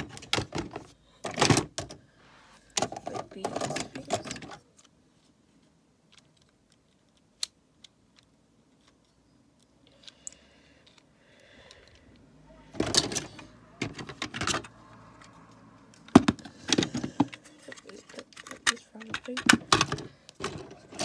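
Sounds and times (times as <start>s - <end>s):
plastic bricks clicking and rattling: 16.0s - 21.0s.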